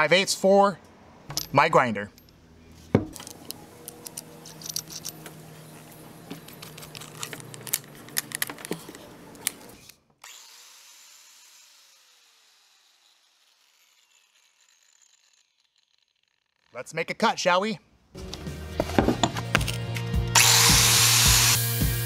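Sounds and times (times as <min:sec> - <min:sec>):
metallic clicks and clinks: 0:03.1 - 0:05.4, 0:06.4 - 0:08.8.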